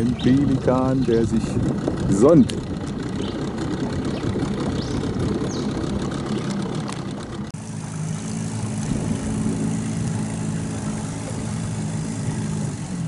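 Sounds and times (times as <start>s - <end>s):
outboard motor running: 0.0s - 13.0s.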